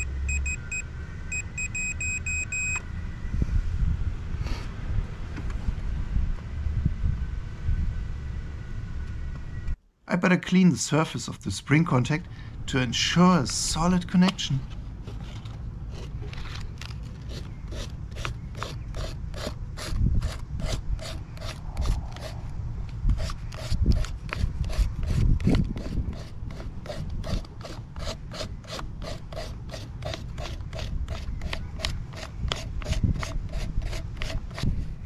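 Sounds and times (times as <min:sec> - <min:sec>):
sandpaper rubbing on metal: 0:17.2 - 0:22.4, 0:23.1 - 0:34.9.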